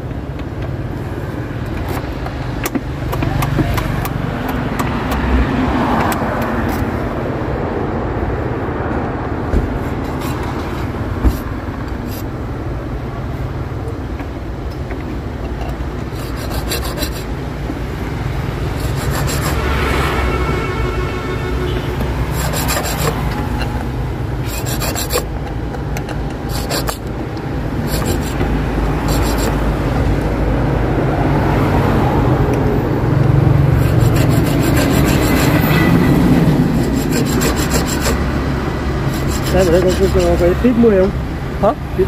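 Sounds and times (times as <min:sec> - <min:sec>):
metal hand file rasping on key: 0:15.4 - 0:17.3, 0:18.6 - 0:19.8, 0:22.0 - 0:27.1, 0:27.7 - 0:29.6, 0:33.7 - 0:40.8.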